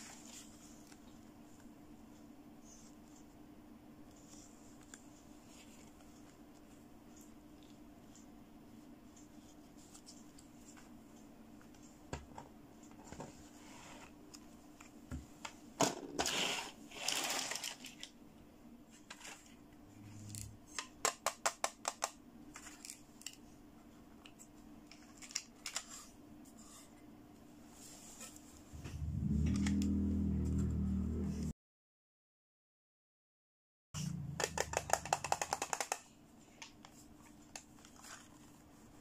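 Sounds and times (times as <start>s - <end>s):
rustling scrapes: 16.2s - 17.7s
plastic toys knocking and clicking: 20.7s - 22.2s, 34.3s - 36.1s
low music: 28.8s - 31.5s
sharp plastic clicks: 34.4s - 36.1s.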